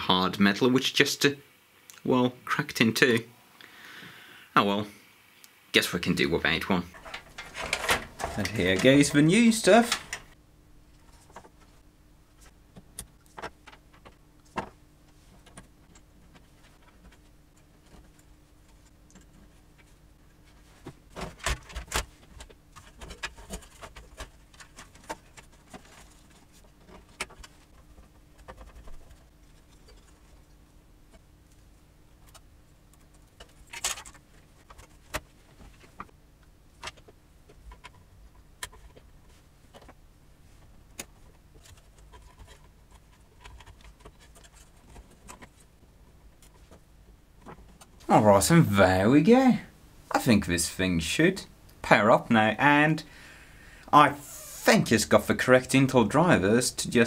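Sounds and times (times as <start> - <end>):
cables clicking in metal case: 6.9 - 9.2, 32.2 - 35.3, 40.9 - 45.6.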